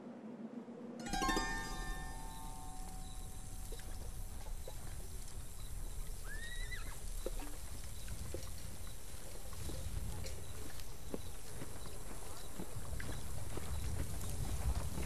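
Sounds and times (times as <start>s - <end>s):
horse whinny: 6.3s - 7.0s.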